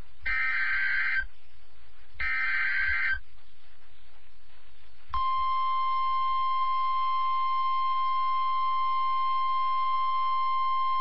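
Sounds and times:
steady warning alarm tone: 0:00.3 - 0:01.2, 0:02.2 - 0:03.2, 0:05.2 - 0:11.0.

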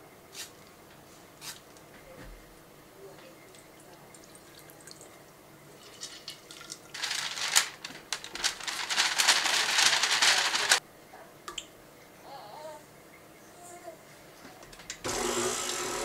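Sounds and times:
parchment paper crackling and rustling: 0:05.8 - 0:10.8.

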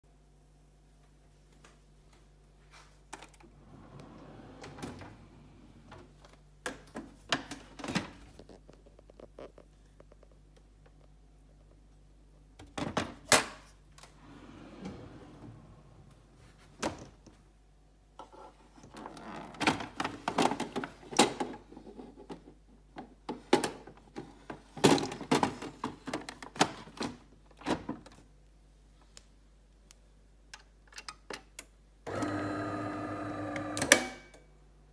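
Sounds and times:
plastic parts clicking and rattling: 0:18.8 - 0:28.2
coffee machine humming: 0:32.1 - 0:33.9.

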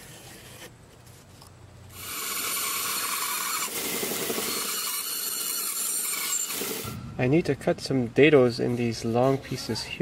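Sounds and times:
bandsaw sawing through wood: 0:02.0 - 0:06.9.

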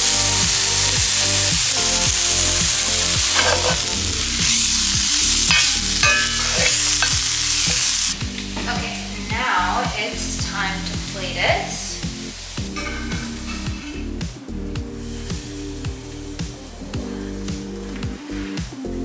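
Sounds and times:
meat and vegetables sizzling: 0:00.0 - 0:19.0
spatula scraping a skillet: 0:02.4 - 0:08.2.

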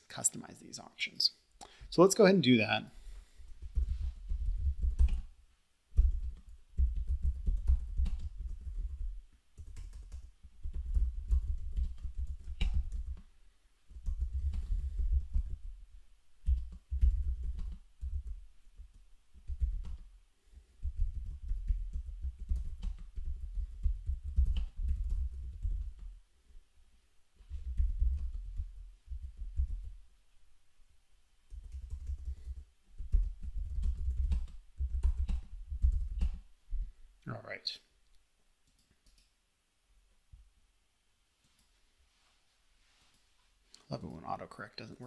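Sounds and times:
typing on a keyboard: 0:03.6 - 0:05.3, 0:06.0 - 0:13.3, 0:13.9 - 0:15.7, 0:16.4 - 0:26.2, 0:27.6 - 0:30.0, 0:31.5 - 0:36.4.

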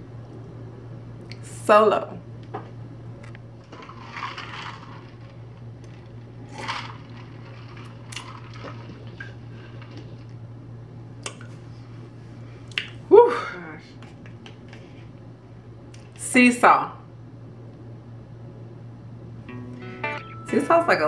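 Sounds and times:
steady low hum: 0:00.0 - 0:16.2, 0:16.9 - 0:21.0.

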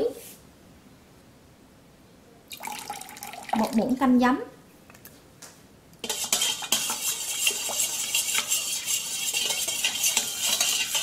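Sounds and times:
utensil stirring in metal bowl: 0:06.0 - 0:11.0.

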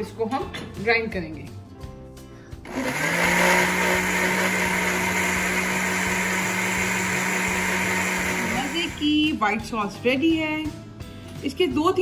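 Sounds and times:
blender motor grinding: 0:02.7 - 0:09.1.

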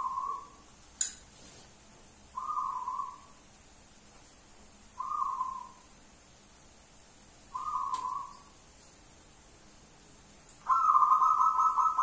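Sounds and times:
dove cooing: 0:00.0 - 0:00.6, 0:02.4 - 0:03.3, 0:05.0 - 0:05.9, 0:07.5 - 0:08.5, 0:10.6 - 0:12.0.

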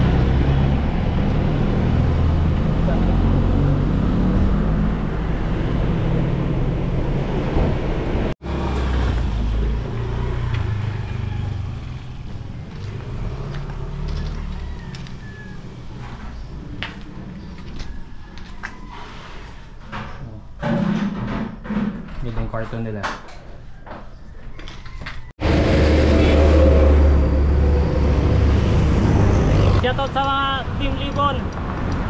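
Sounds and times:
bus engine and road rumble: 0:00.0 - 0:19.0, 0:25.4 - 0:32.0.

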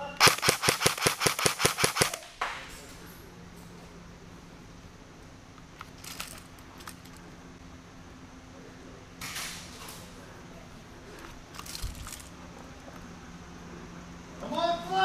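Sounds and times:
steady low hum: 0:00.0 - 0:15.0
gear clicking and rattling: 0:05.6 - 0:07.3, 0:11.2 - 0:12.4.

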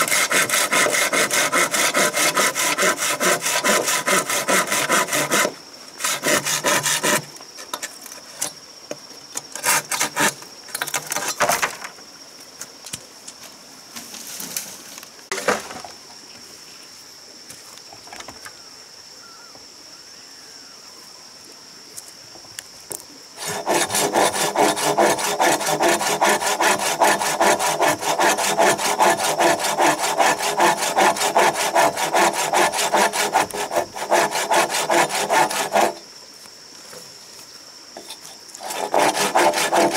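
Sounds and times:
hand saw cutting bamboo: 0:00.0 - 0:07.3, 0:09.6 - 0:10.4, 0:23.4 - 0:36.0, 0:38.6 - 0:39.9
high insect drone: 0:00.0 - 0:39.9.

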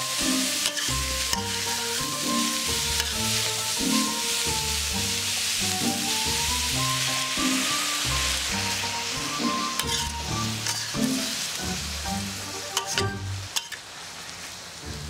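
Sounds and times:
food sizzling in a wok: 0:00.0 - 0:15.0
metal spatula clicking on pan: 0:00.6 - 0:01.4.

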